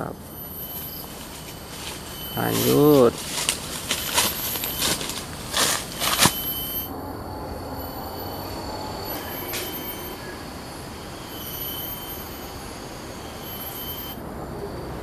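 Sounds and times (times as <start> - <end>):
faint steady hum: 0.0 - 15.0
twigs crackling: 0.4 - 6.9
footsteps through undergrowth: 0.6 - 6.8.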